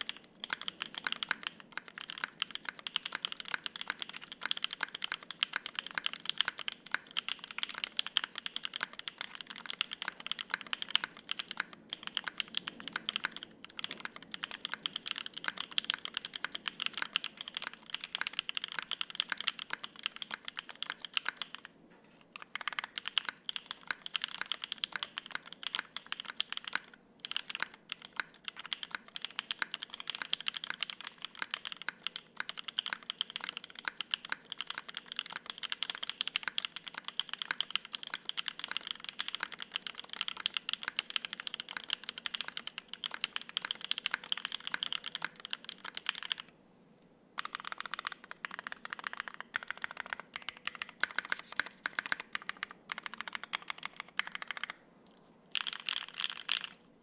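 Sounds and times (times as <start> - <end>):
fast typing on mechanical keyboard: 0.0 - 21.7, 22.4 - 46.5, 47.4 - 54.8, 55.5 - 56.8.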